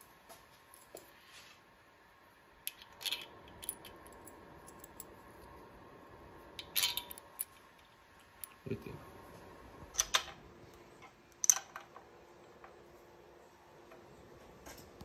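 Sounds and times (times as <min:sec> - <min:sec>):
metal shims clicking and clinking: 0:02.7 - 0:05.1, 0:06.6 - 0:08.6.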